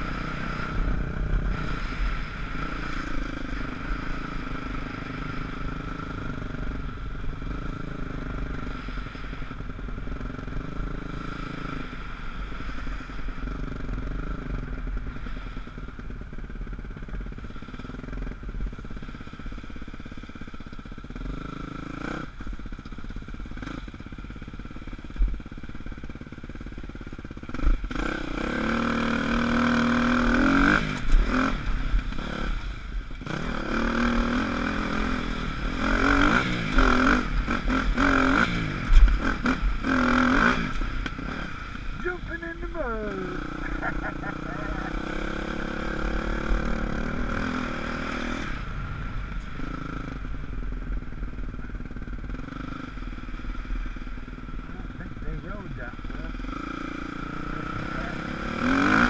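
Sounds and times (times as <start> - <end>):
dirt bike engine revving: 0.0 - 15.7, 27.3 - 59.0.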